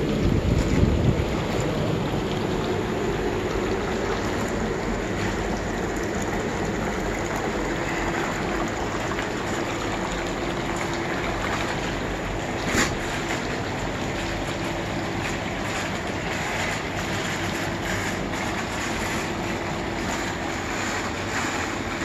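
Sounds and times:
hot tub water churning: 0.0 - 22.0.

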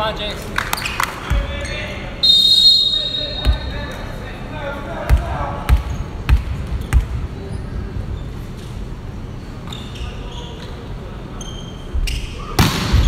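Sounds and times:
volleyball bouncing on hardwood floor: 5.1 - 7.2
short high squeaks: 9.6 - 12.5.

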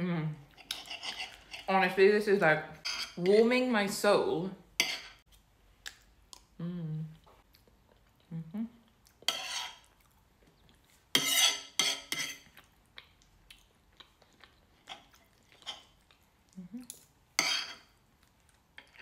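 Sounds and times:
cutlery scraping a plate: 0.5 - 1.7, 2.8 - 3.4, 4.8 - 5.2, 9.2 - 9.9, 11.1 - 12.5, 17.4 - 17.9.

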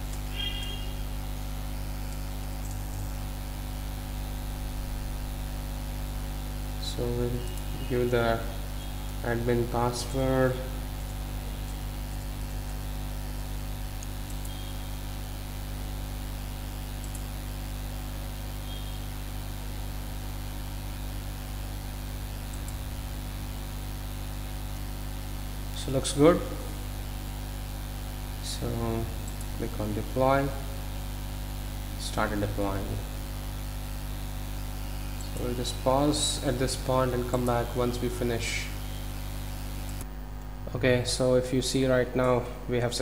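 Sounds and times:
low electrical hum: 0.0 - 43.0
microphone hiss: 25.7 - 43.0.

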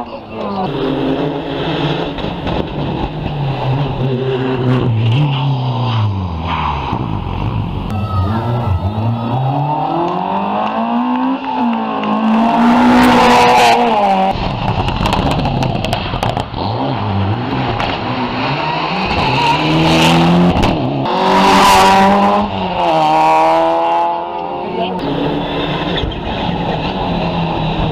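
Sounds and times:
rally car engines accelerating: 0.0 - 27.9.

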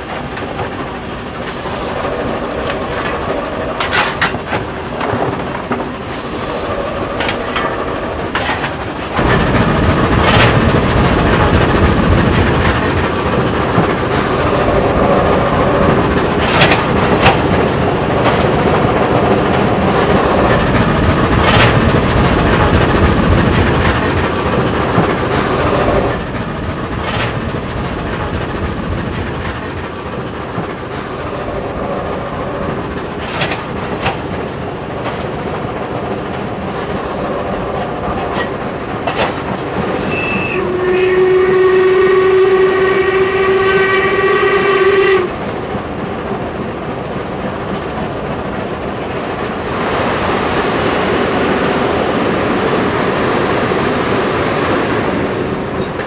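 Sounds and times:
wheels clicking over rails: 0.0 - 40.6
train running rumble: 0.0 - 56.0
steam whistle blast: 40.0 - 45.3.

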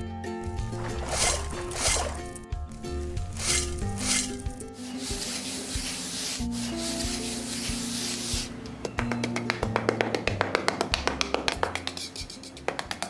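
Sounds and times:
background music with held notes: 0.0 - 13.0
trowel scraping damp sand: 0.4 - 8.5.

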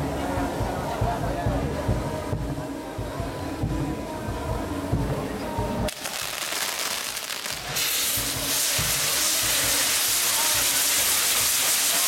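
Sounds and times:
fireworks fountains hissing: 5.9 - 12.0.

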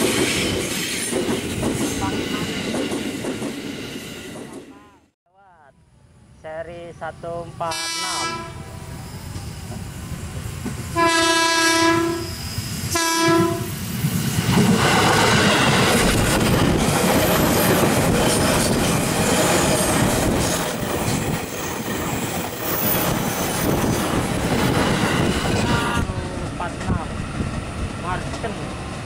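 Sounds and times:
train wheels clacking on rails: 0.0 - 4.7, 12.8 - 29.0
train horn: 7.6 - 8.9, 10.9 - 13.7, 25.5 - 26.2.

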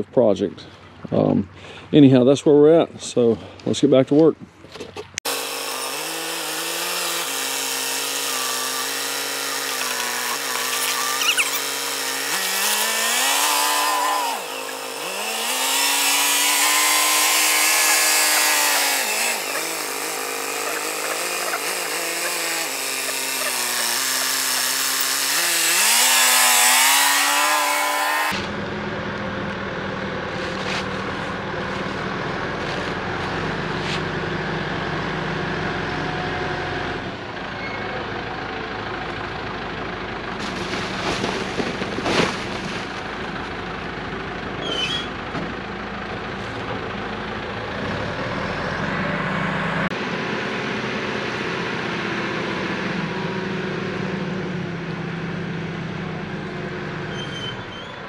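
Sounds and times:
diesel engine running: 5.1 - 57.8.

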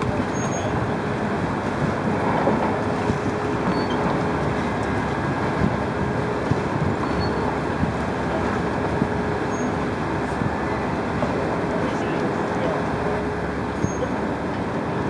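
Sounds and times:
distant traffic: 0.0 - 15.0
wind: 0.0 - 15.0.

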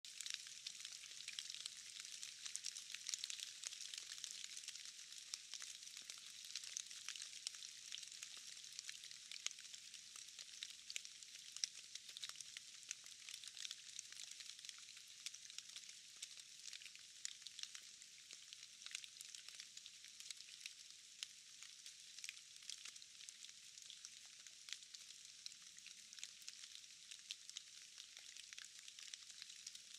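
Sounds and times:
rain falling in a forest: 0.0 - 29.9.

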